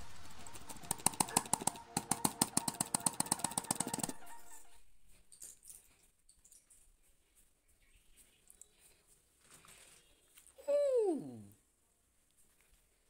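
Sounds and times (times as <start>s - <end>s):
computer mouse clicking: 0.7s - 4.2s.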